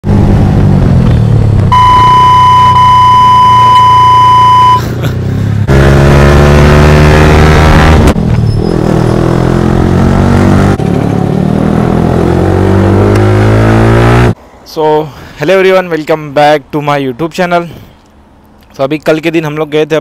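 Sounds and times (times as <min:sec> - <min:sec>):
steady electronic beep: 0:01.7 - 0:04.8
motorcycle engine revving: 0:05.0 - 0:14.4.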